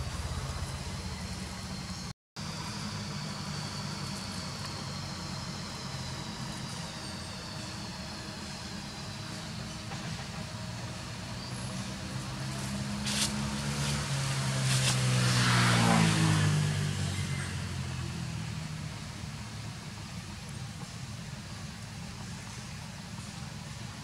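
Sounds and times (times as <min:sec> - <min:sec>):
vehicle driving past: 0:00.0 - 0:02.1, 0:09.6 - 0:19.2.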